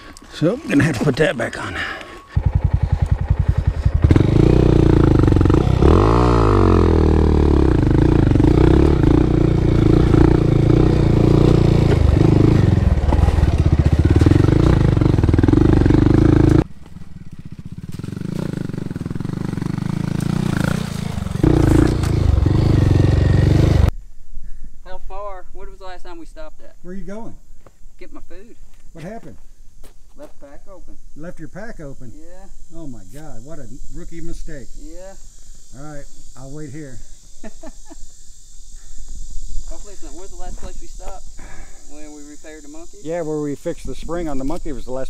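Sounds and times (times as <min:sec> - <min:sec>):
motorcycle engine revving: 0:01.7 - 0:23.9.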